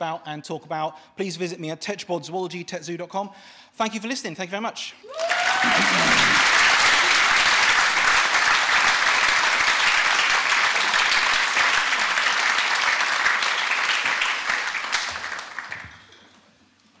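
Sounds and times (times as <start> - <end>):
audience applauding: 5.1 - 16.2.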